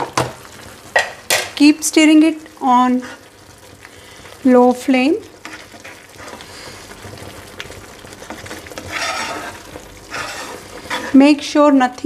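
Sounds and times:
spoon scraping a pan: 3.0s - 3.3s, 5.4s - 7.2s, 8.1s - 11.5s.

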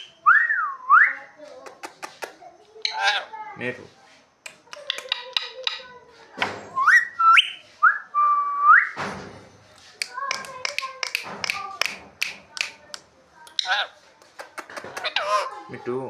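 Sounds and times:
parrot clicks and chattering: 1.6s - 3.3s, 4.4s - 5.9s, 10.0s - 15.5s
parrot harsh calls: 2.8s - 3.4s, 13.6s - 14.0s, 15.0s - 15.7s.

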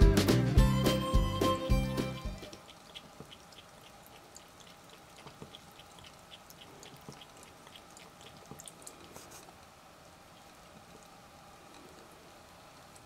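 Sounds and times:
faucet water dripping into sink: 2.5s - 9.0s.

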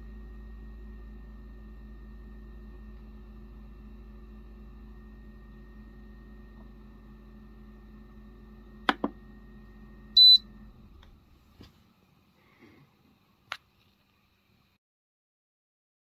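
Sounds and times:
fridge humming: 0.0s - 11.7s
short high beep: 10.2s - 10.4s.

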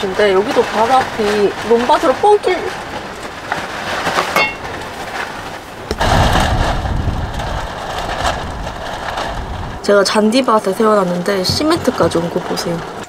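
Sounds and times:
canopy knocking in wind: 2.7s - 9.8s, 11.4s - 13.0s
strong wind on microphone: 5.8s - 10.4s.

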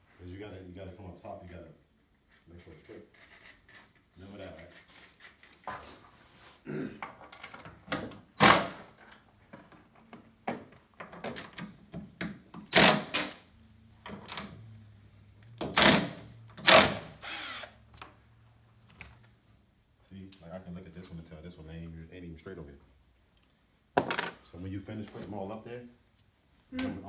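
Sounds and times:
cordless drill running: 16.7s - 17.8s.

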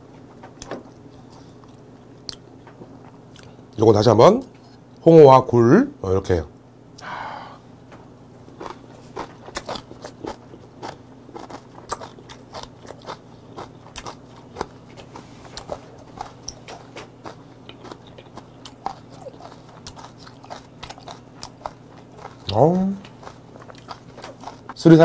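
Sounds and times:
person chewing crunchy food: 0.1s - 3.7s, 8.5s - 24.8s.

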